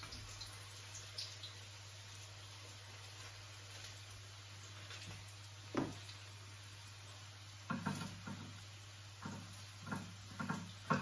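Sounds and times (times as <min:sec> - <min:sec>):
kitchen knocks and taps: 0:05.7 - 0:06.1, 0:07.7 - 0:08.6, 0:09.2 - 0:11.0.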